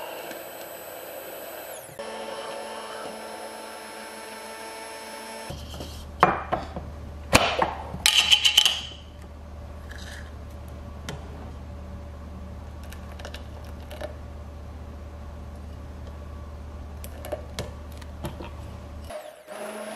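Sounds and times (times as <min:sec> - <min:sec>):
immersion blender whirring: 0:00.0 - 0:05.6, 0:19.1 - 0:19.9.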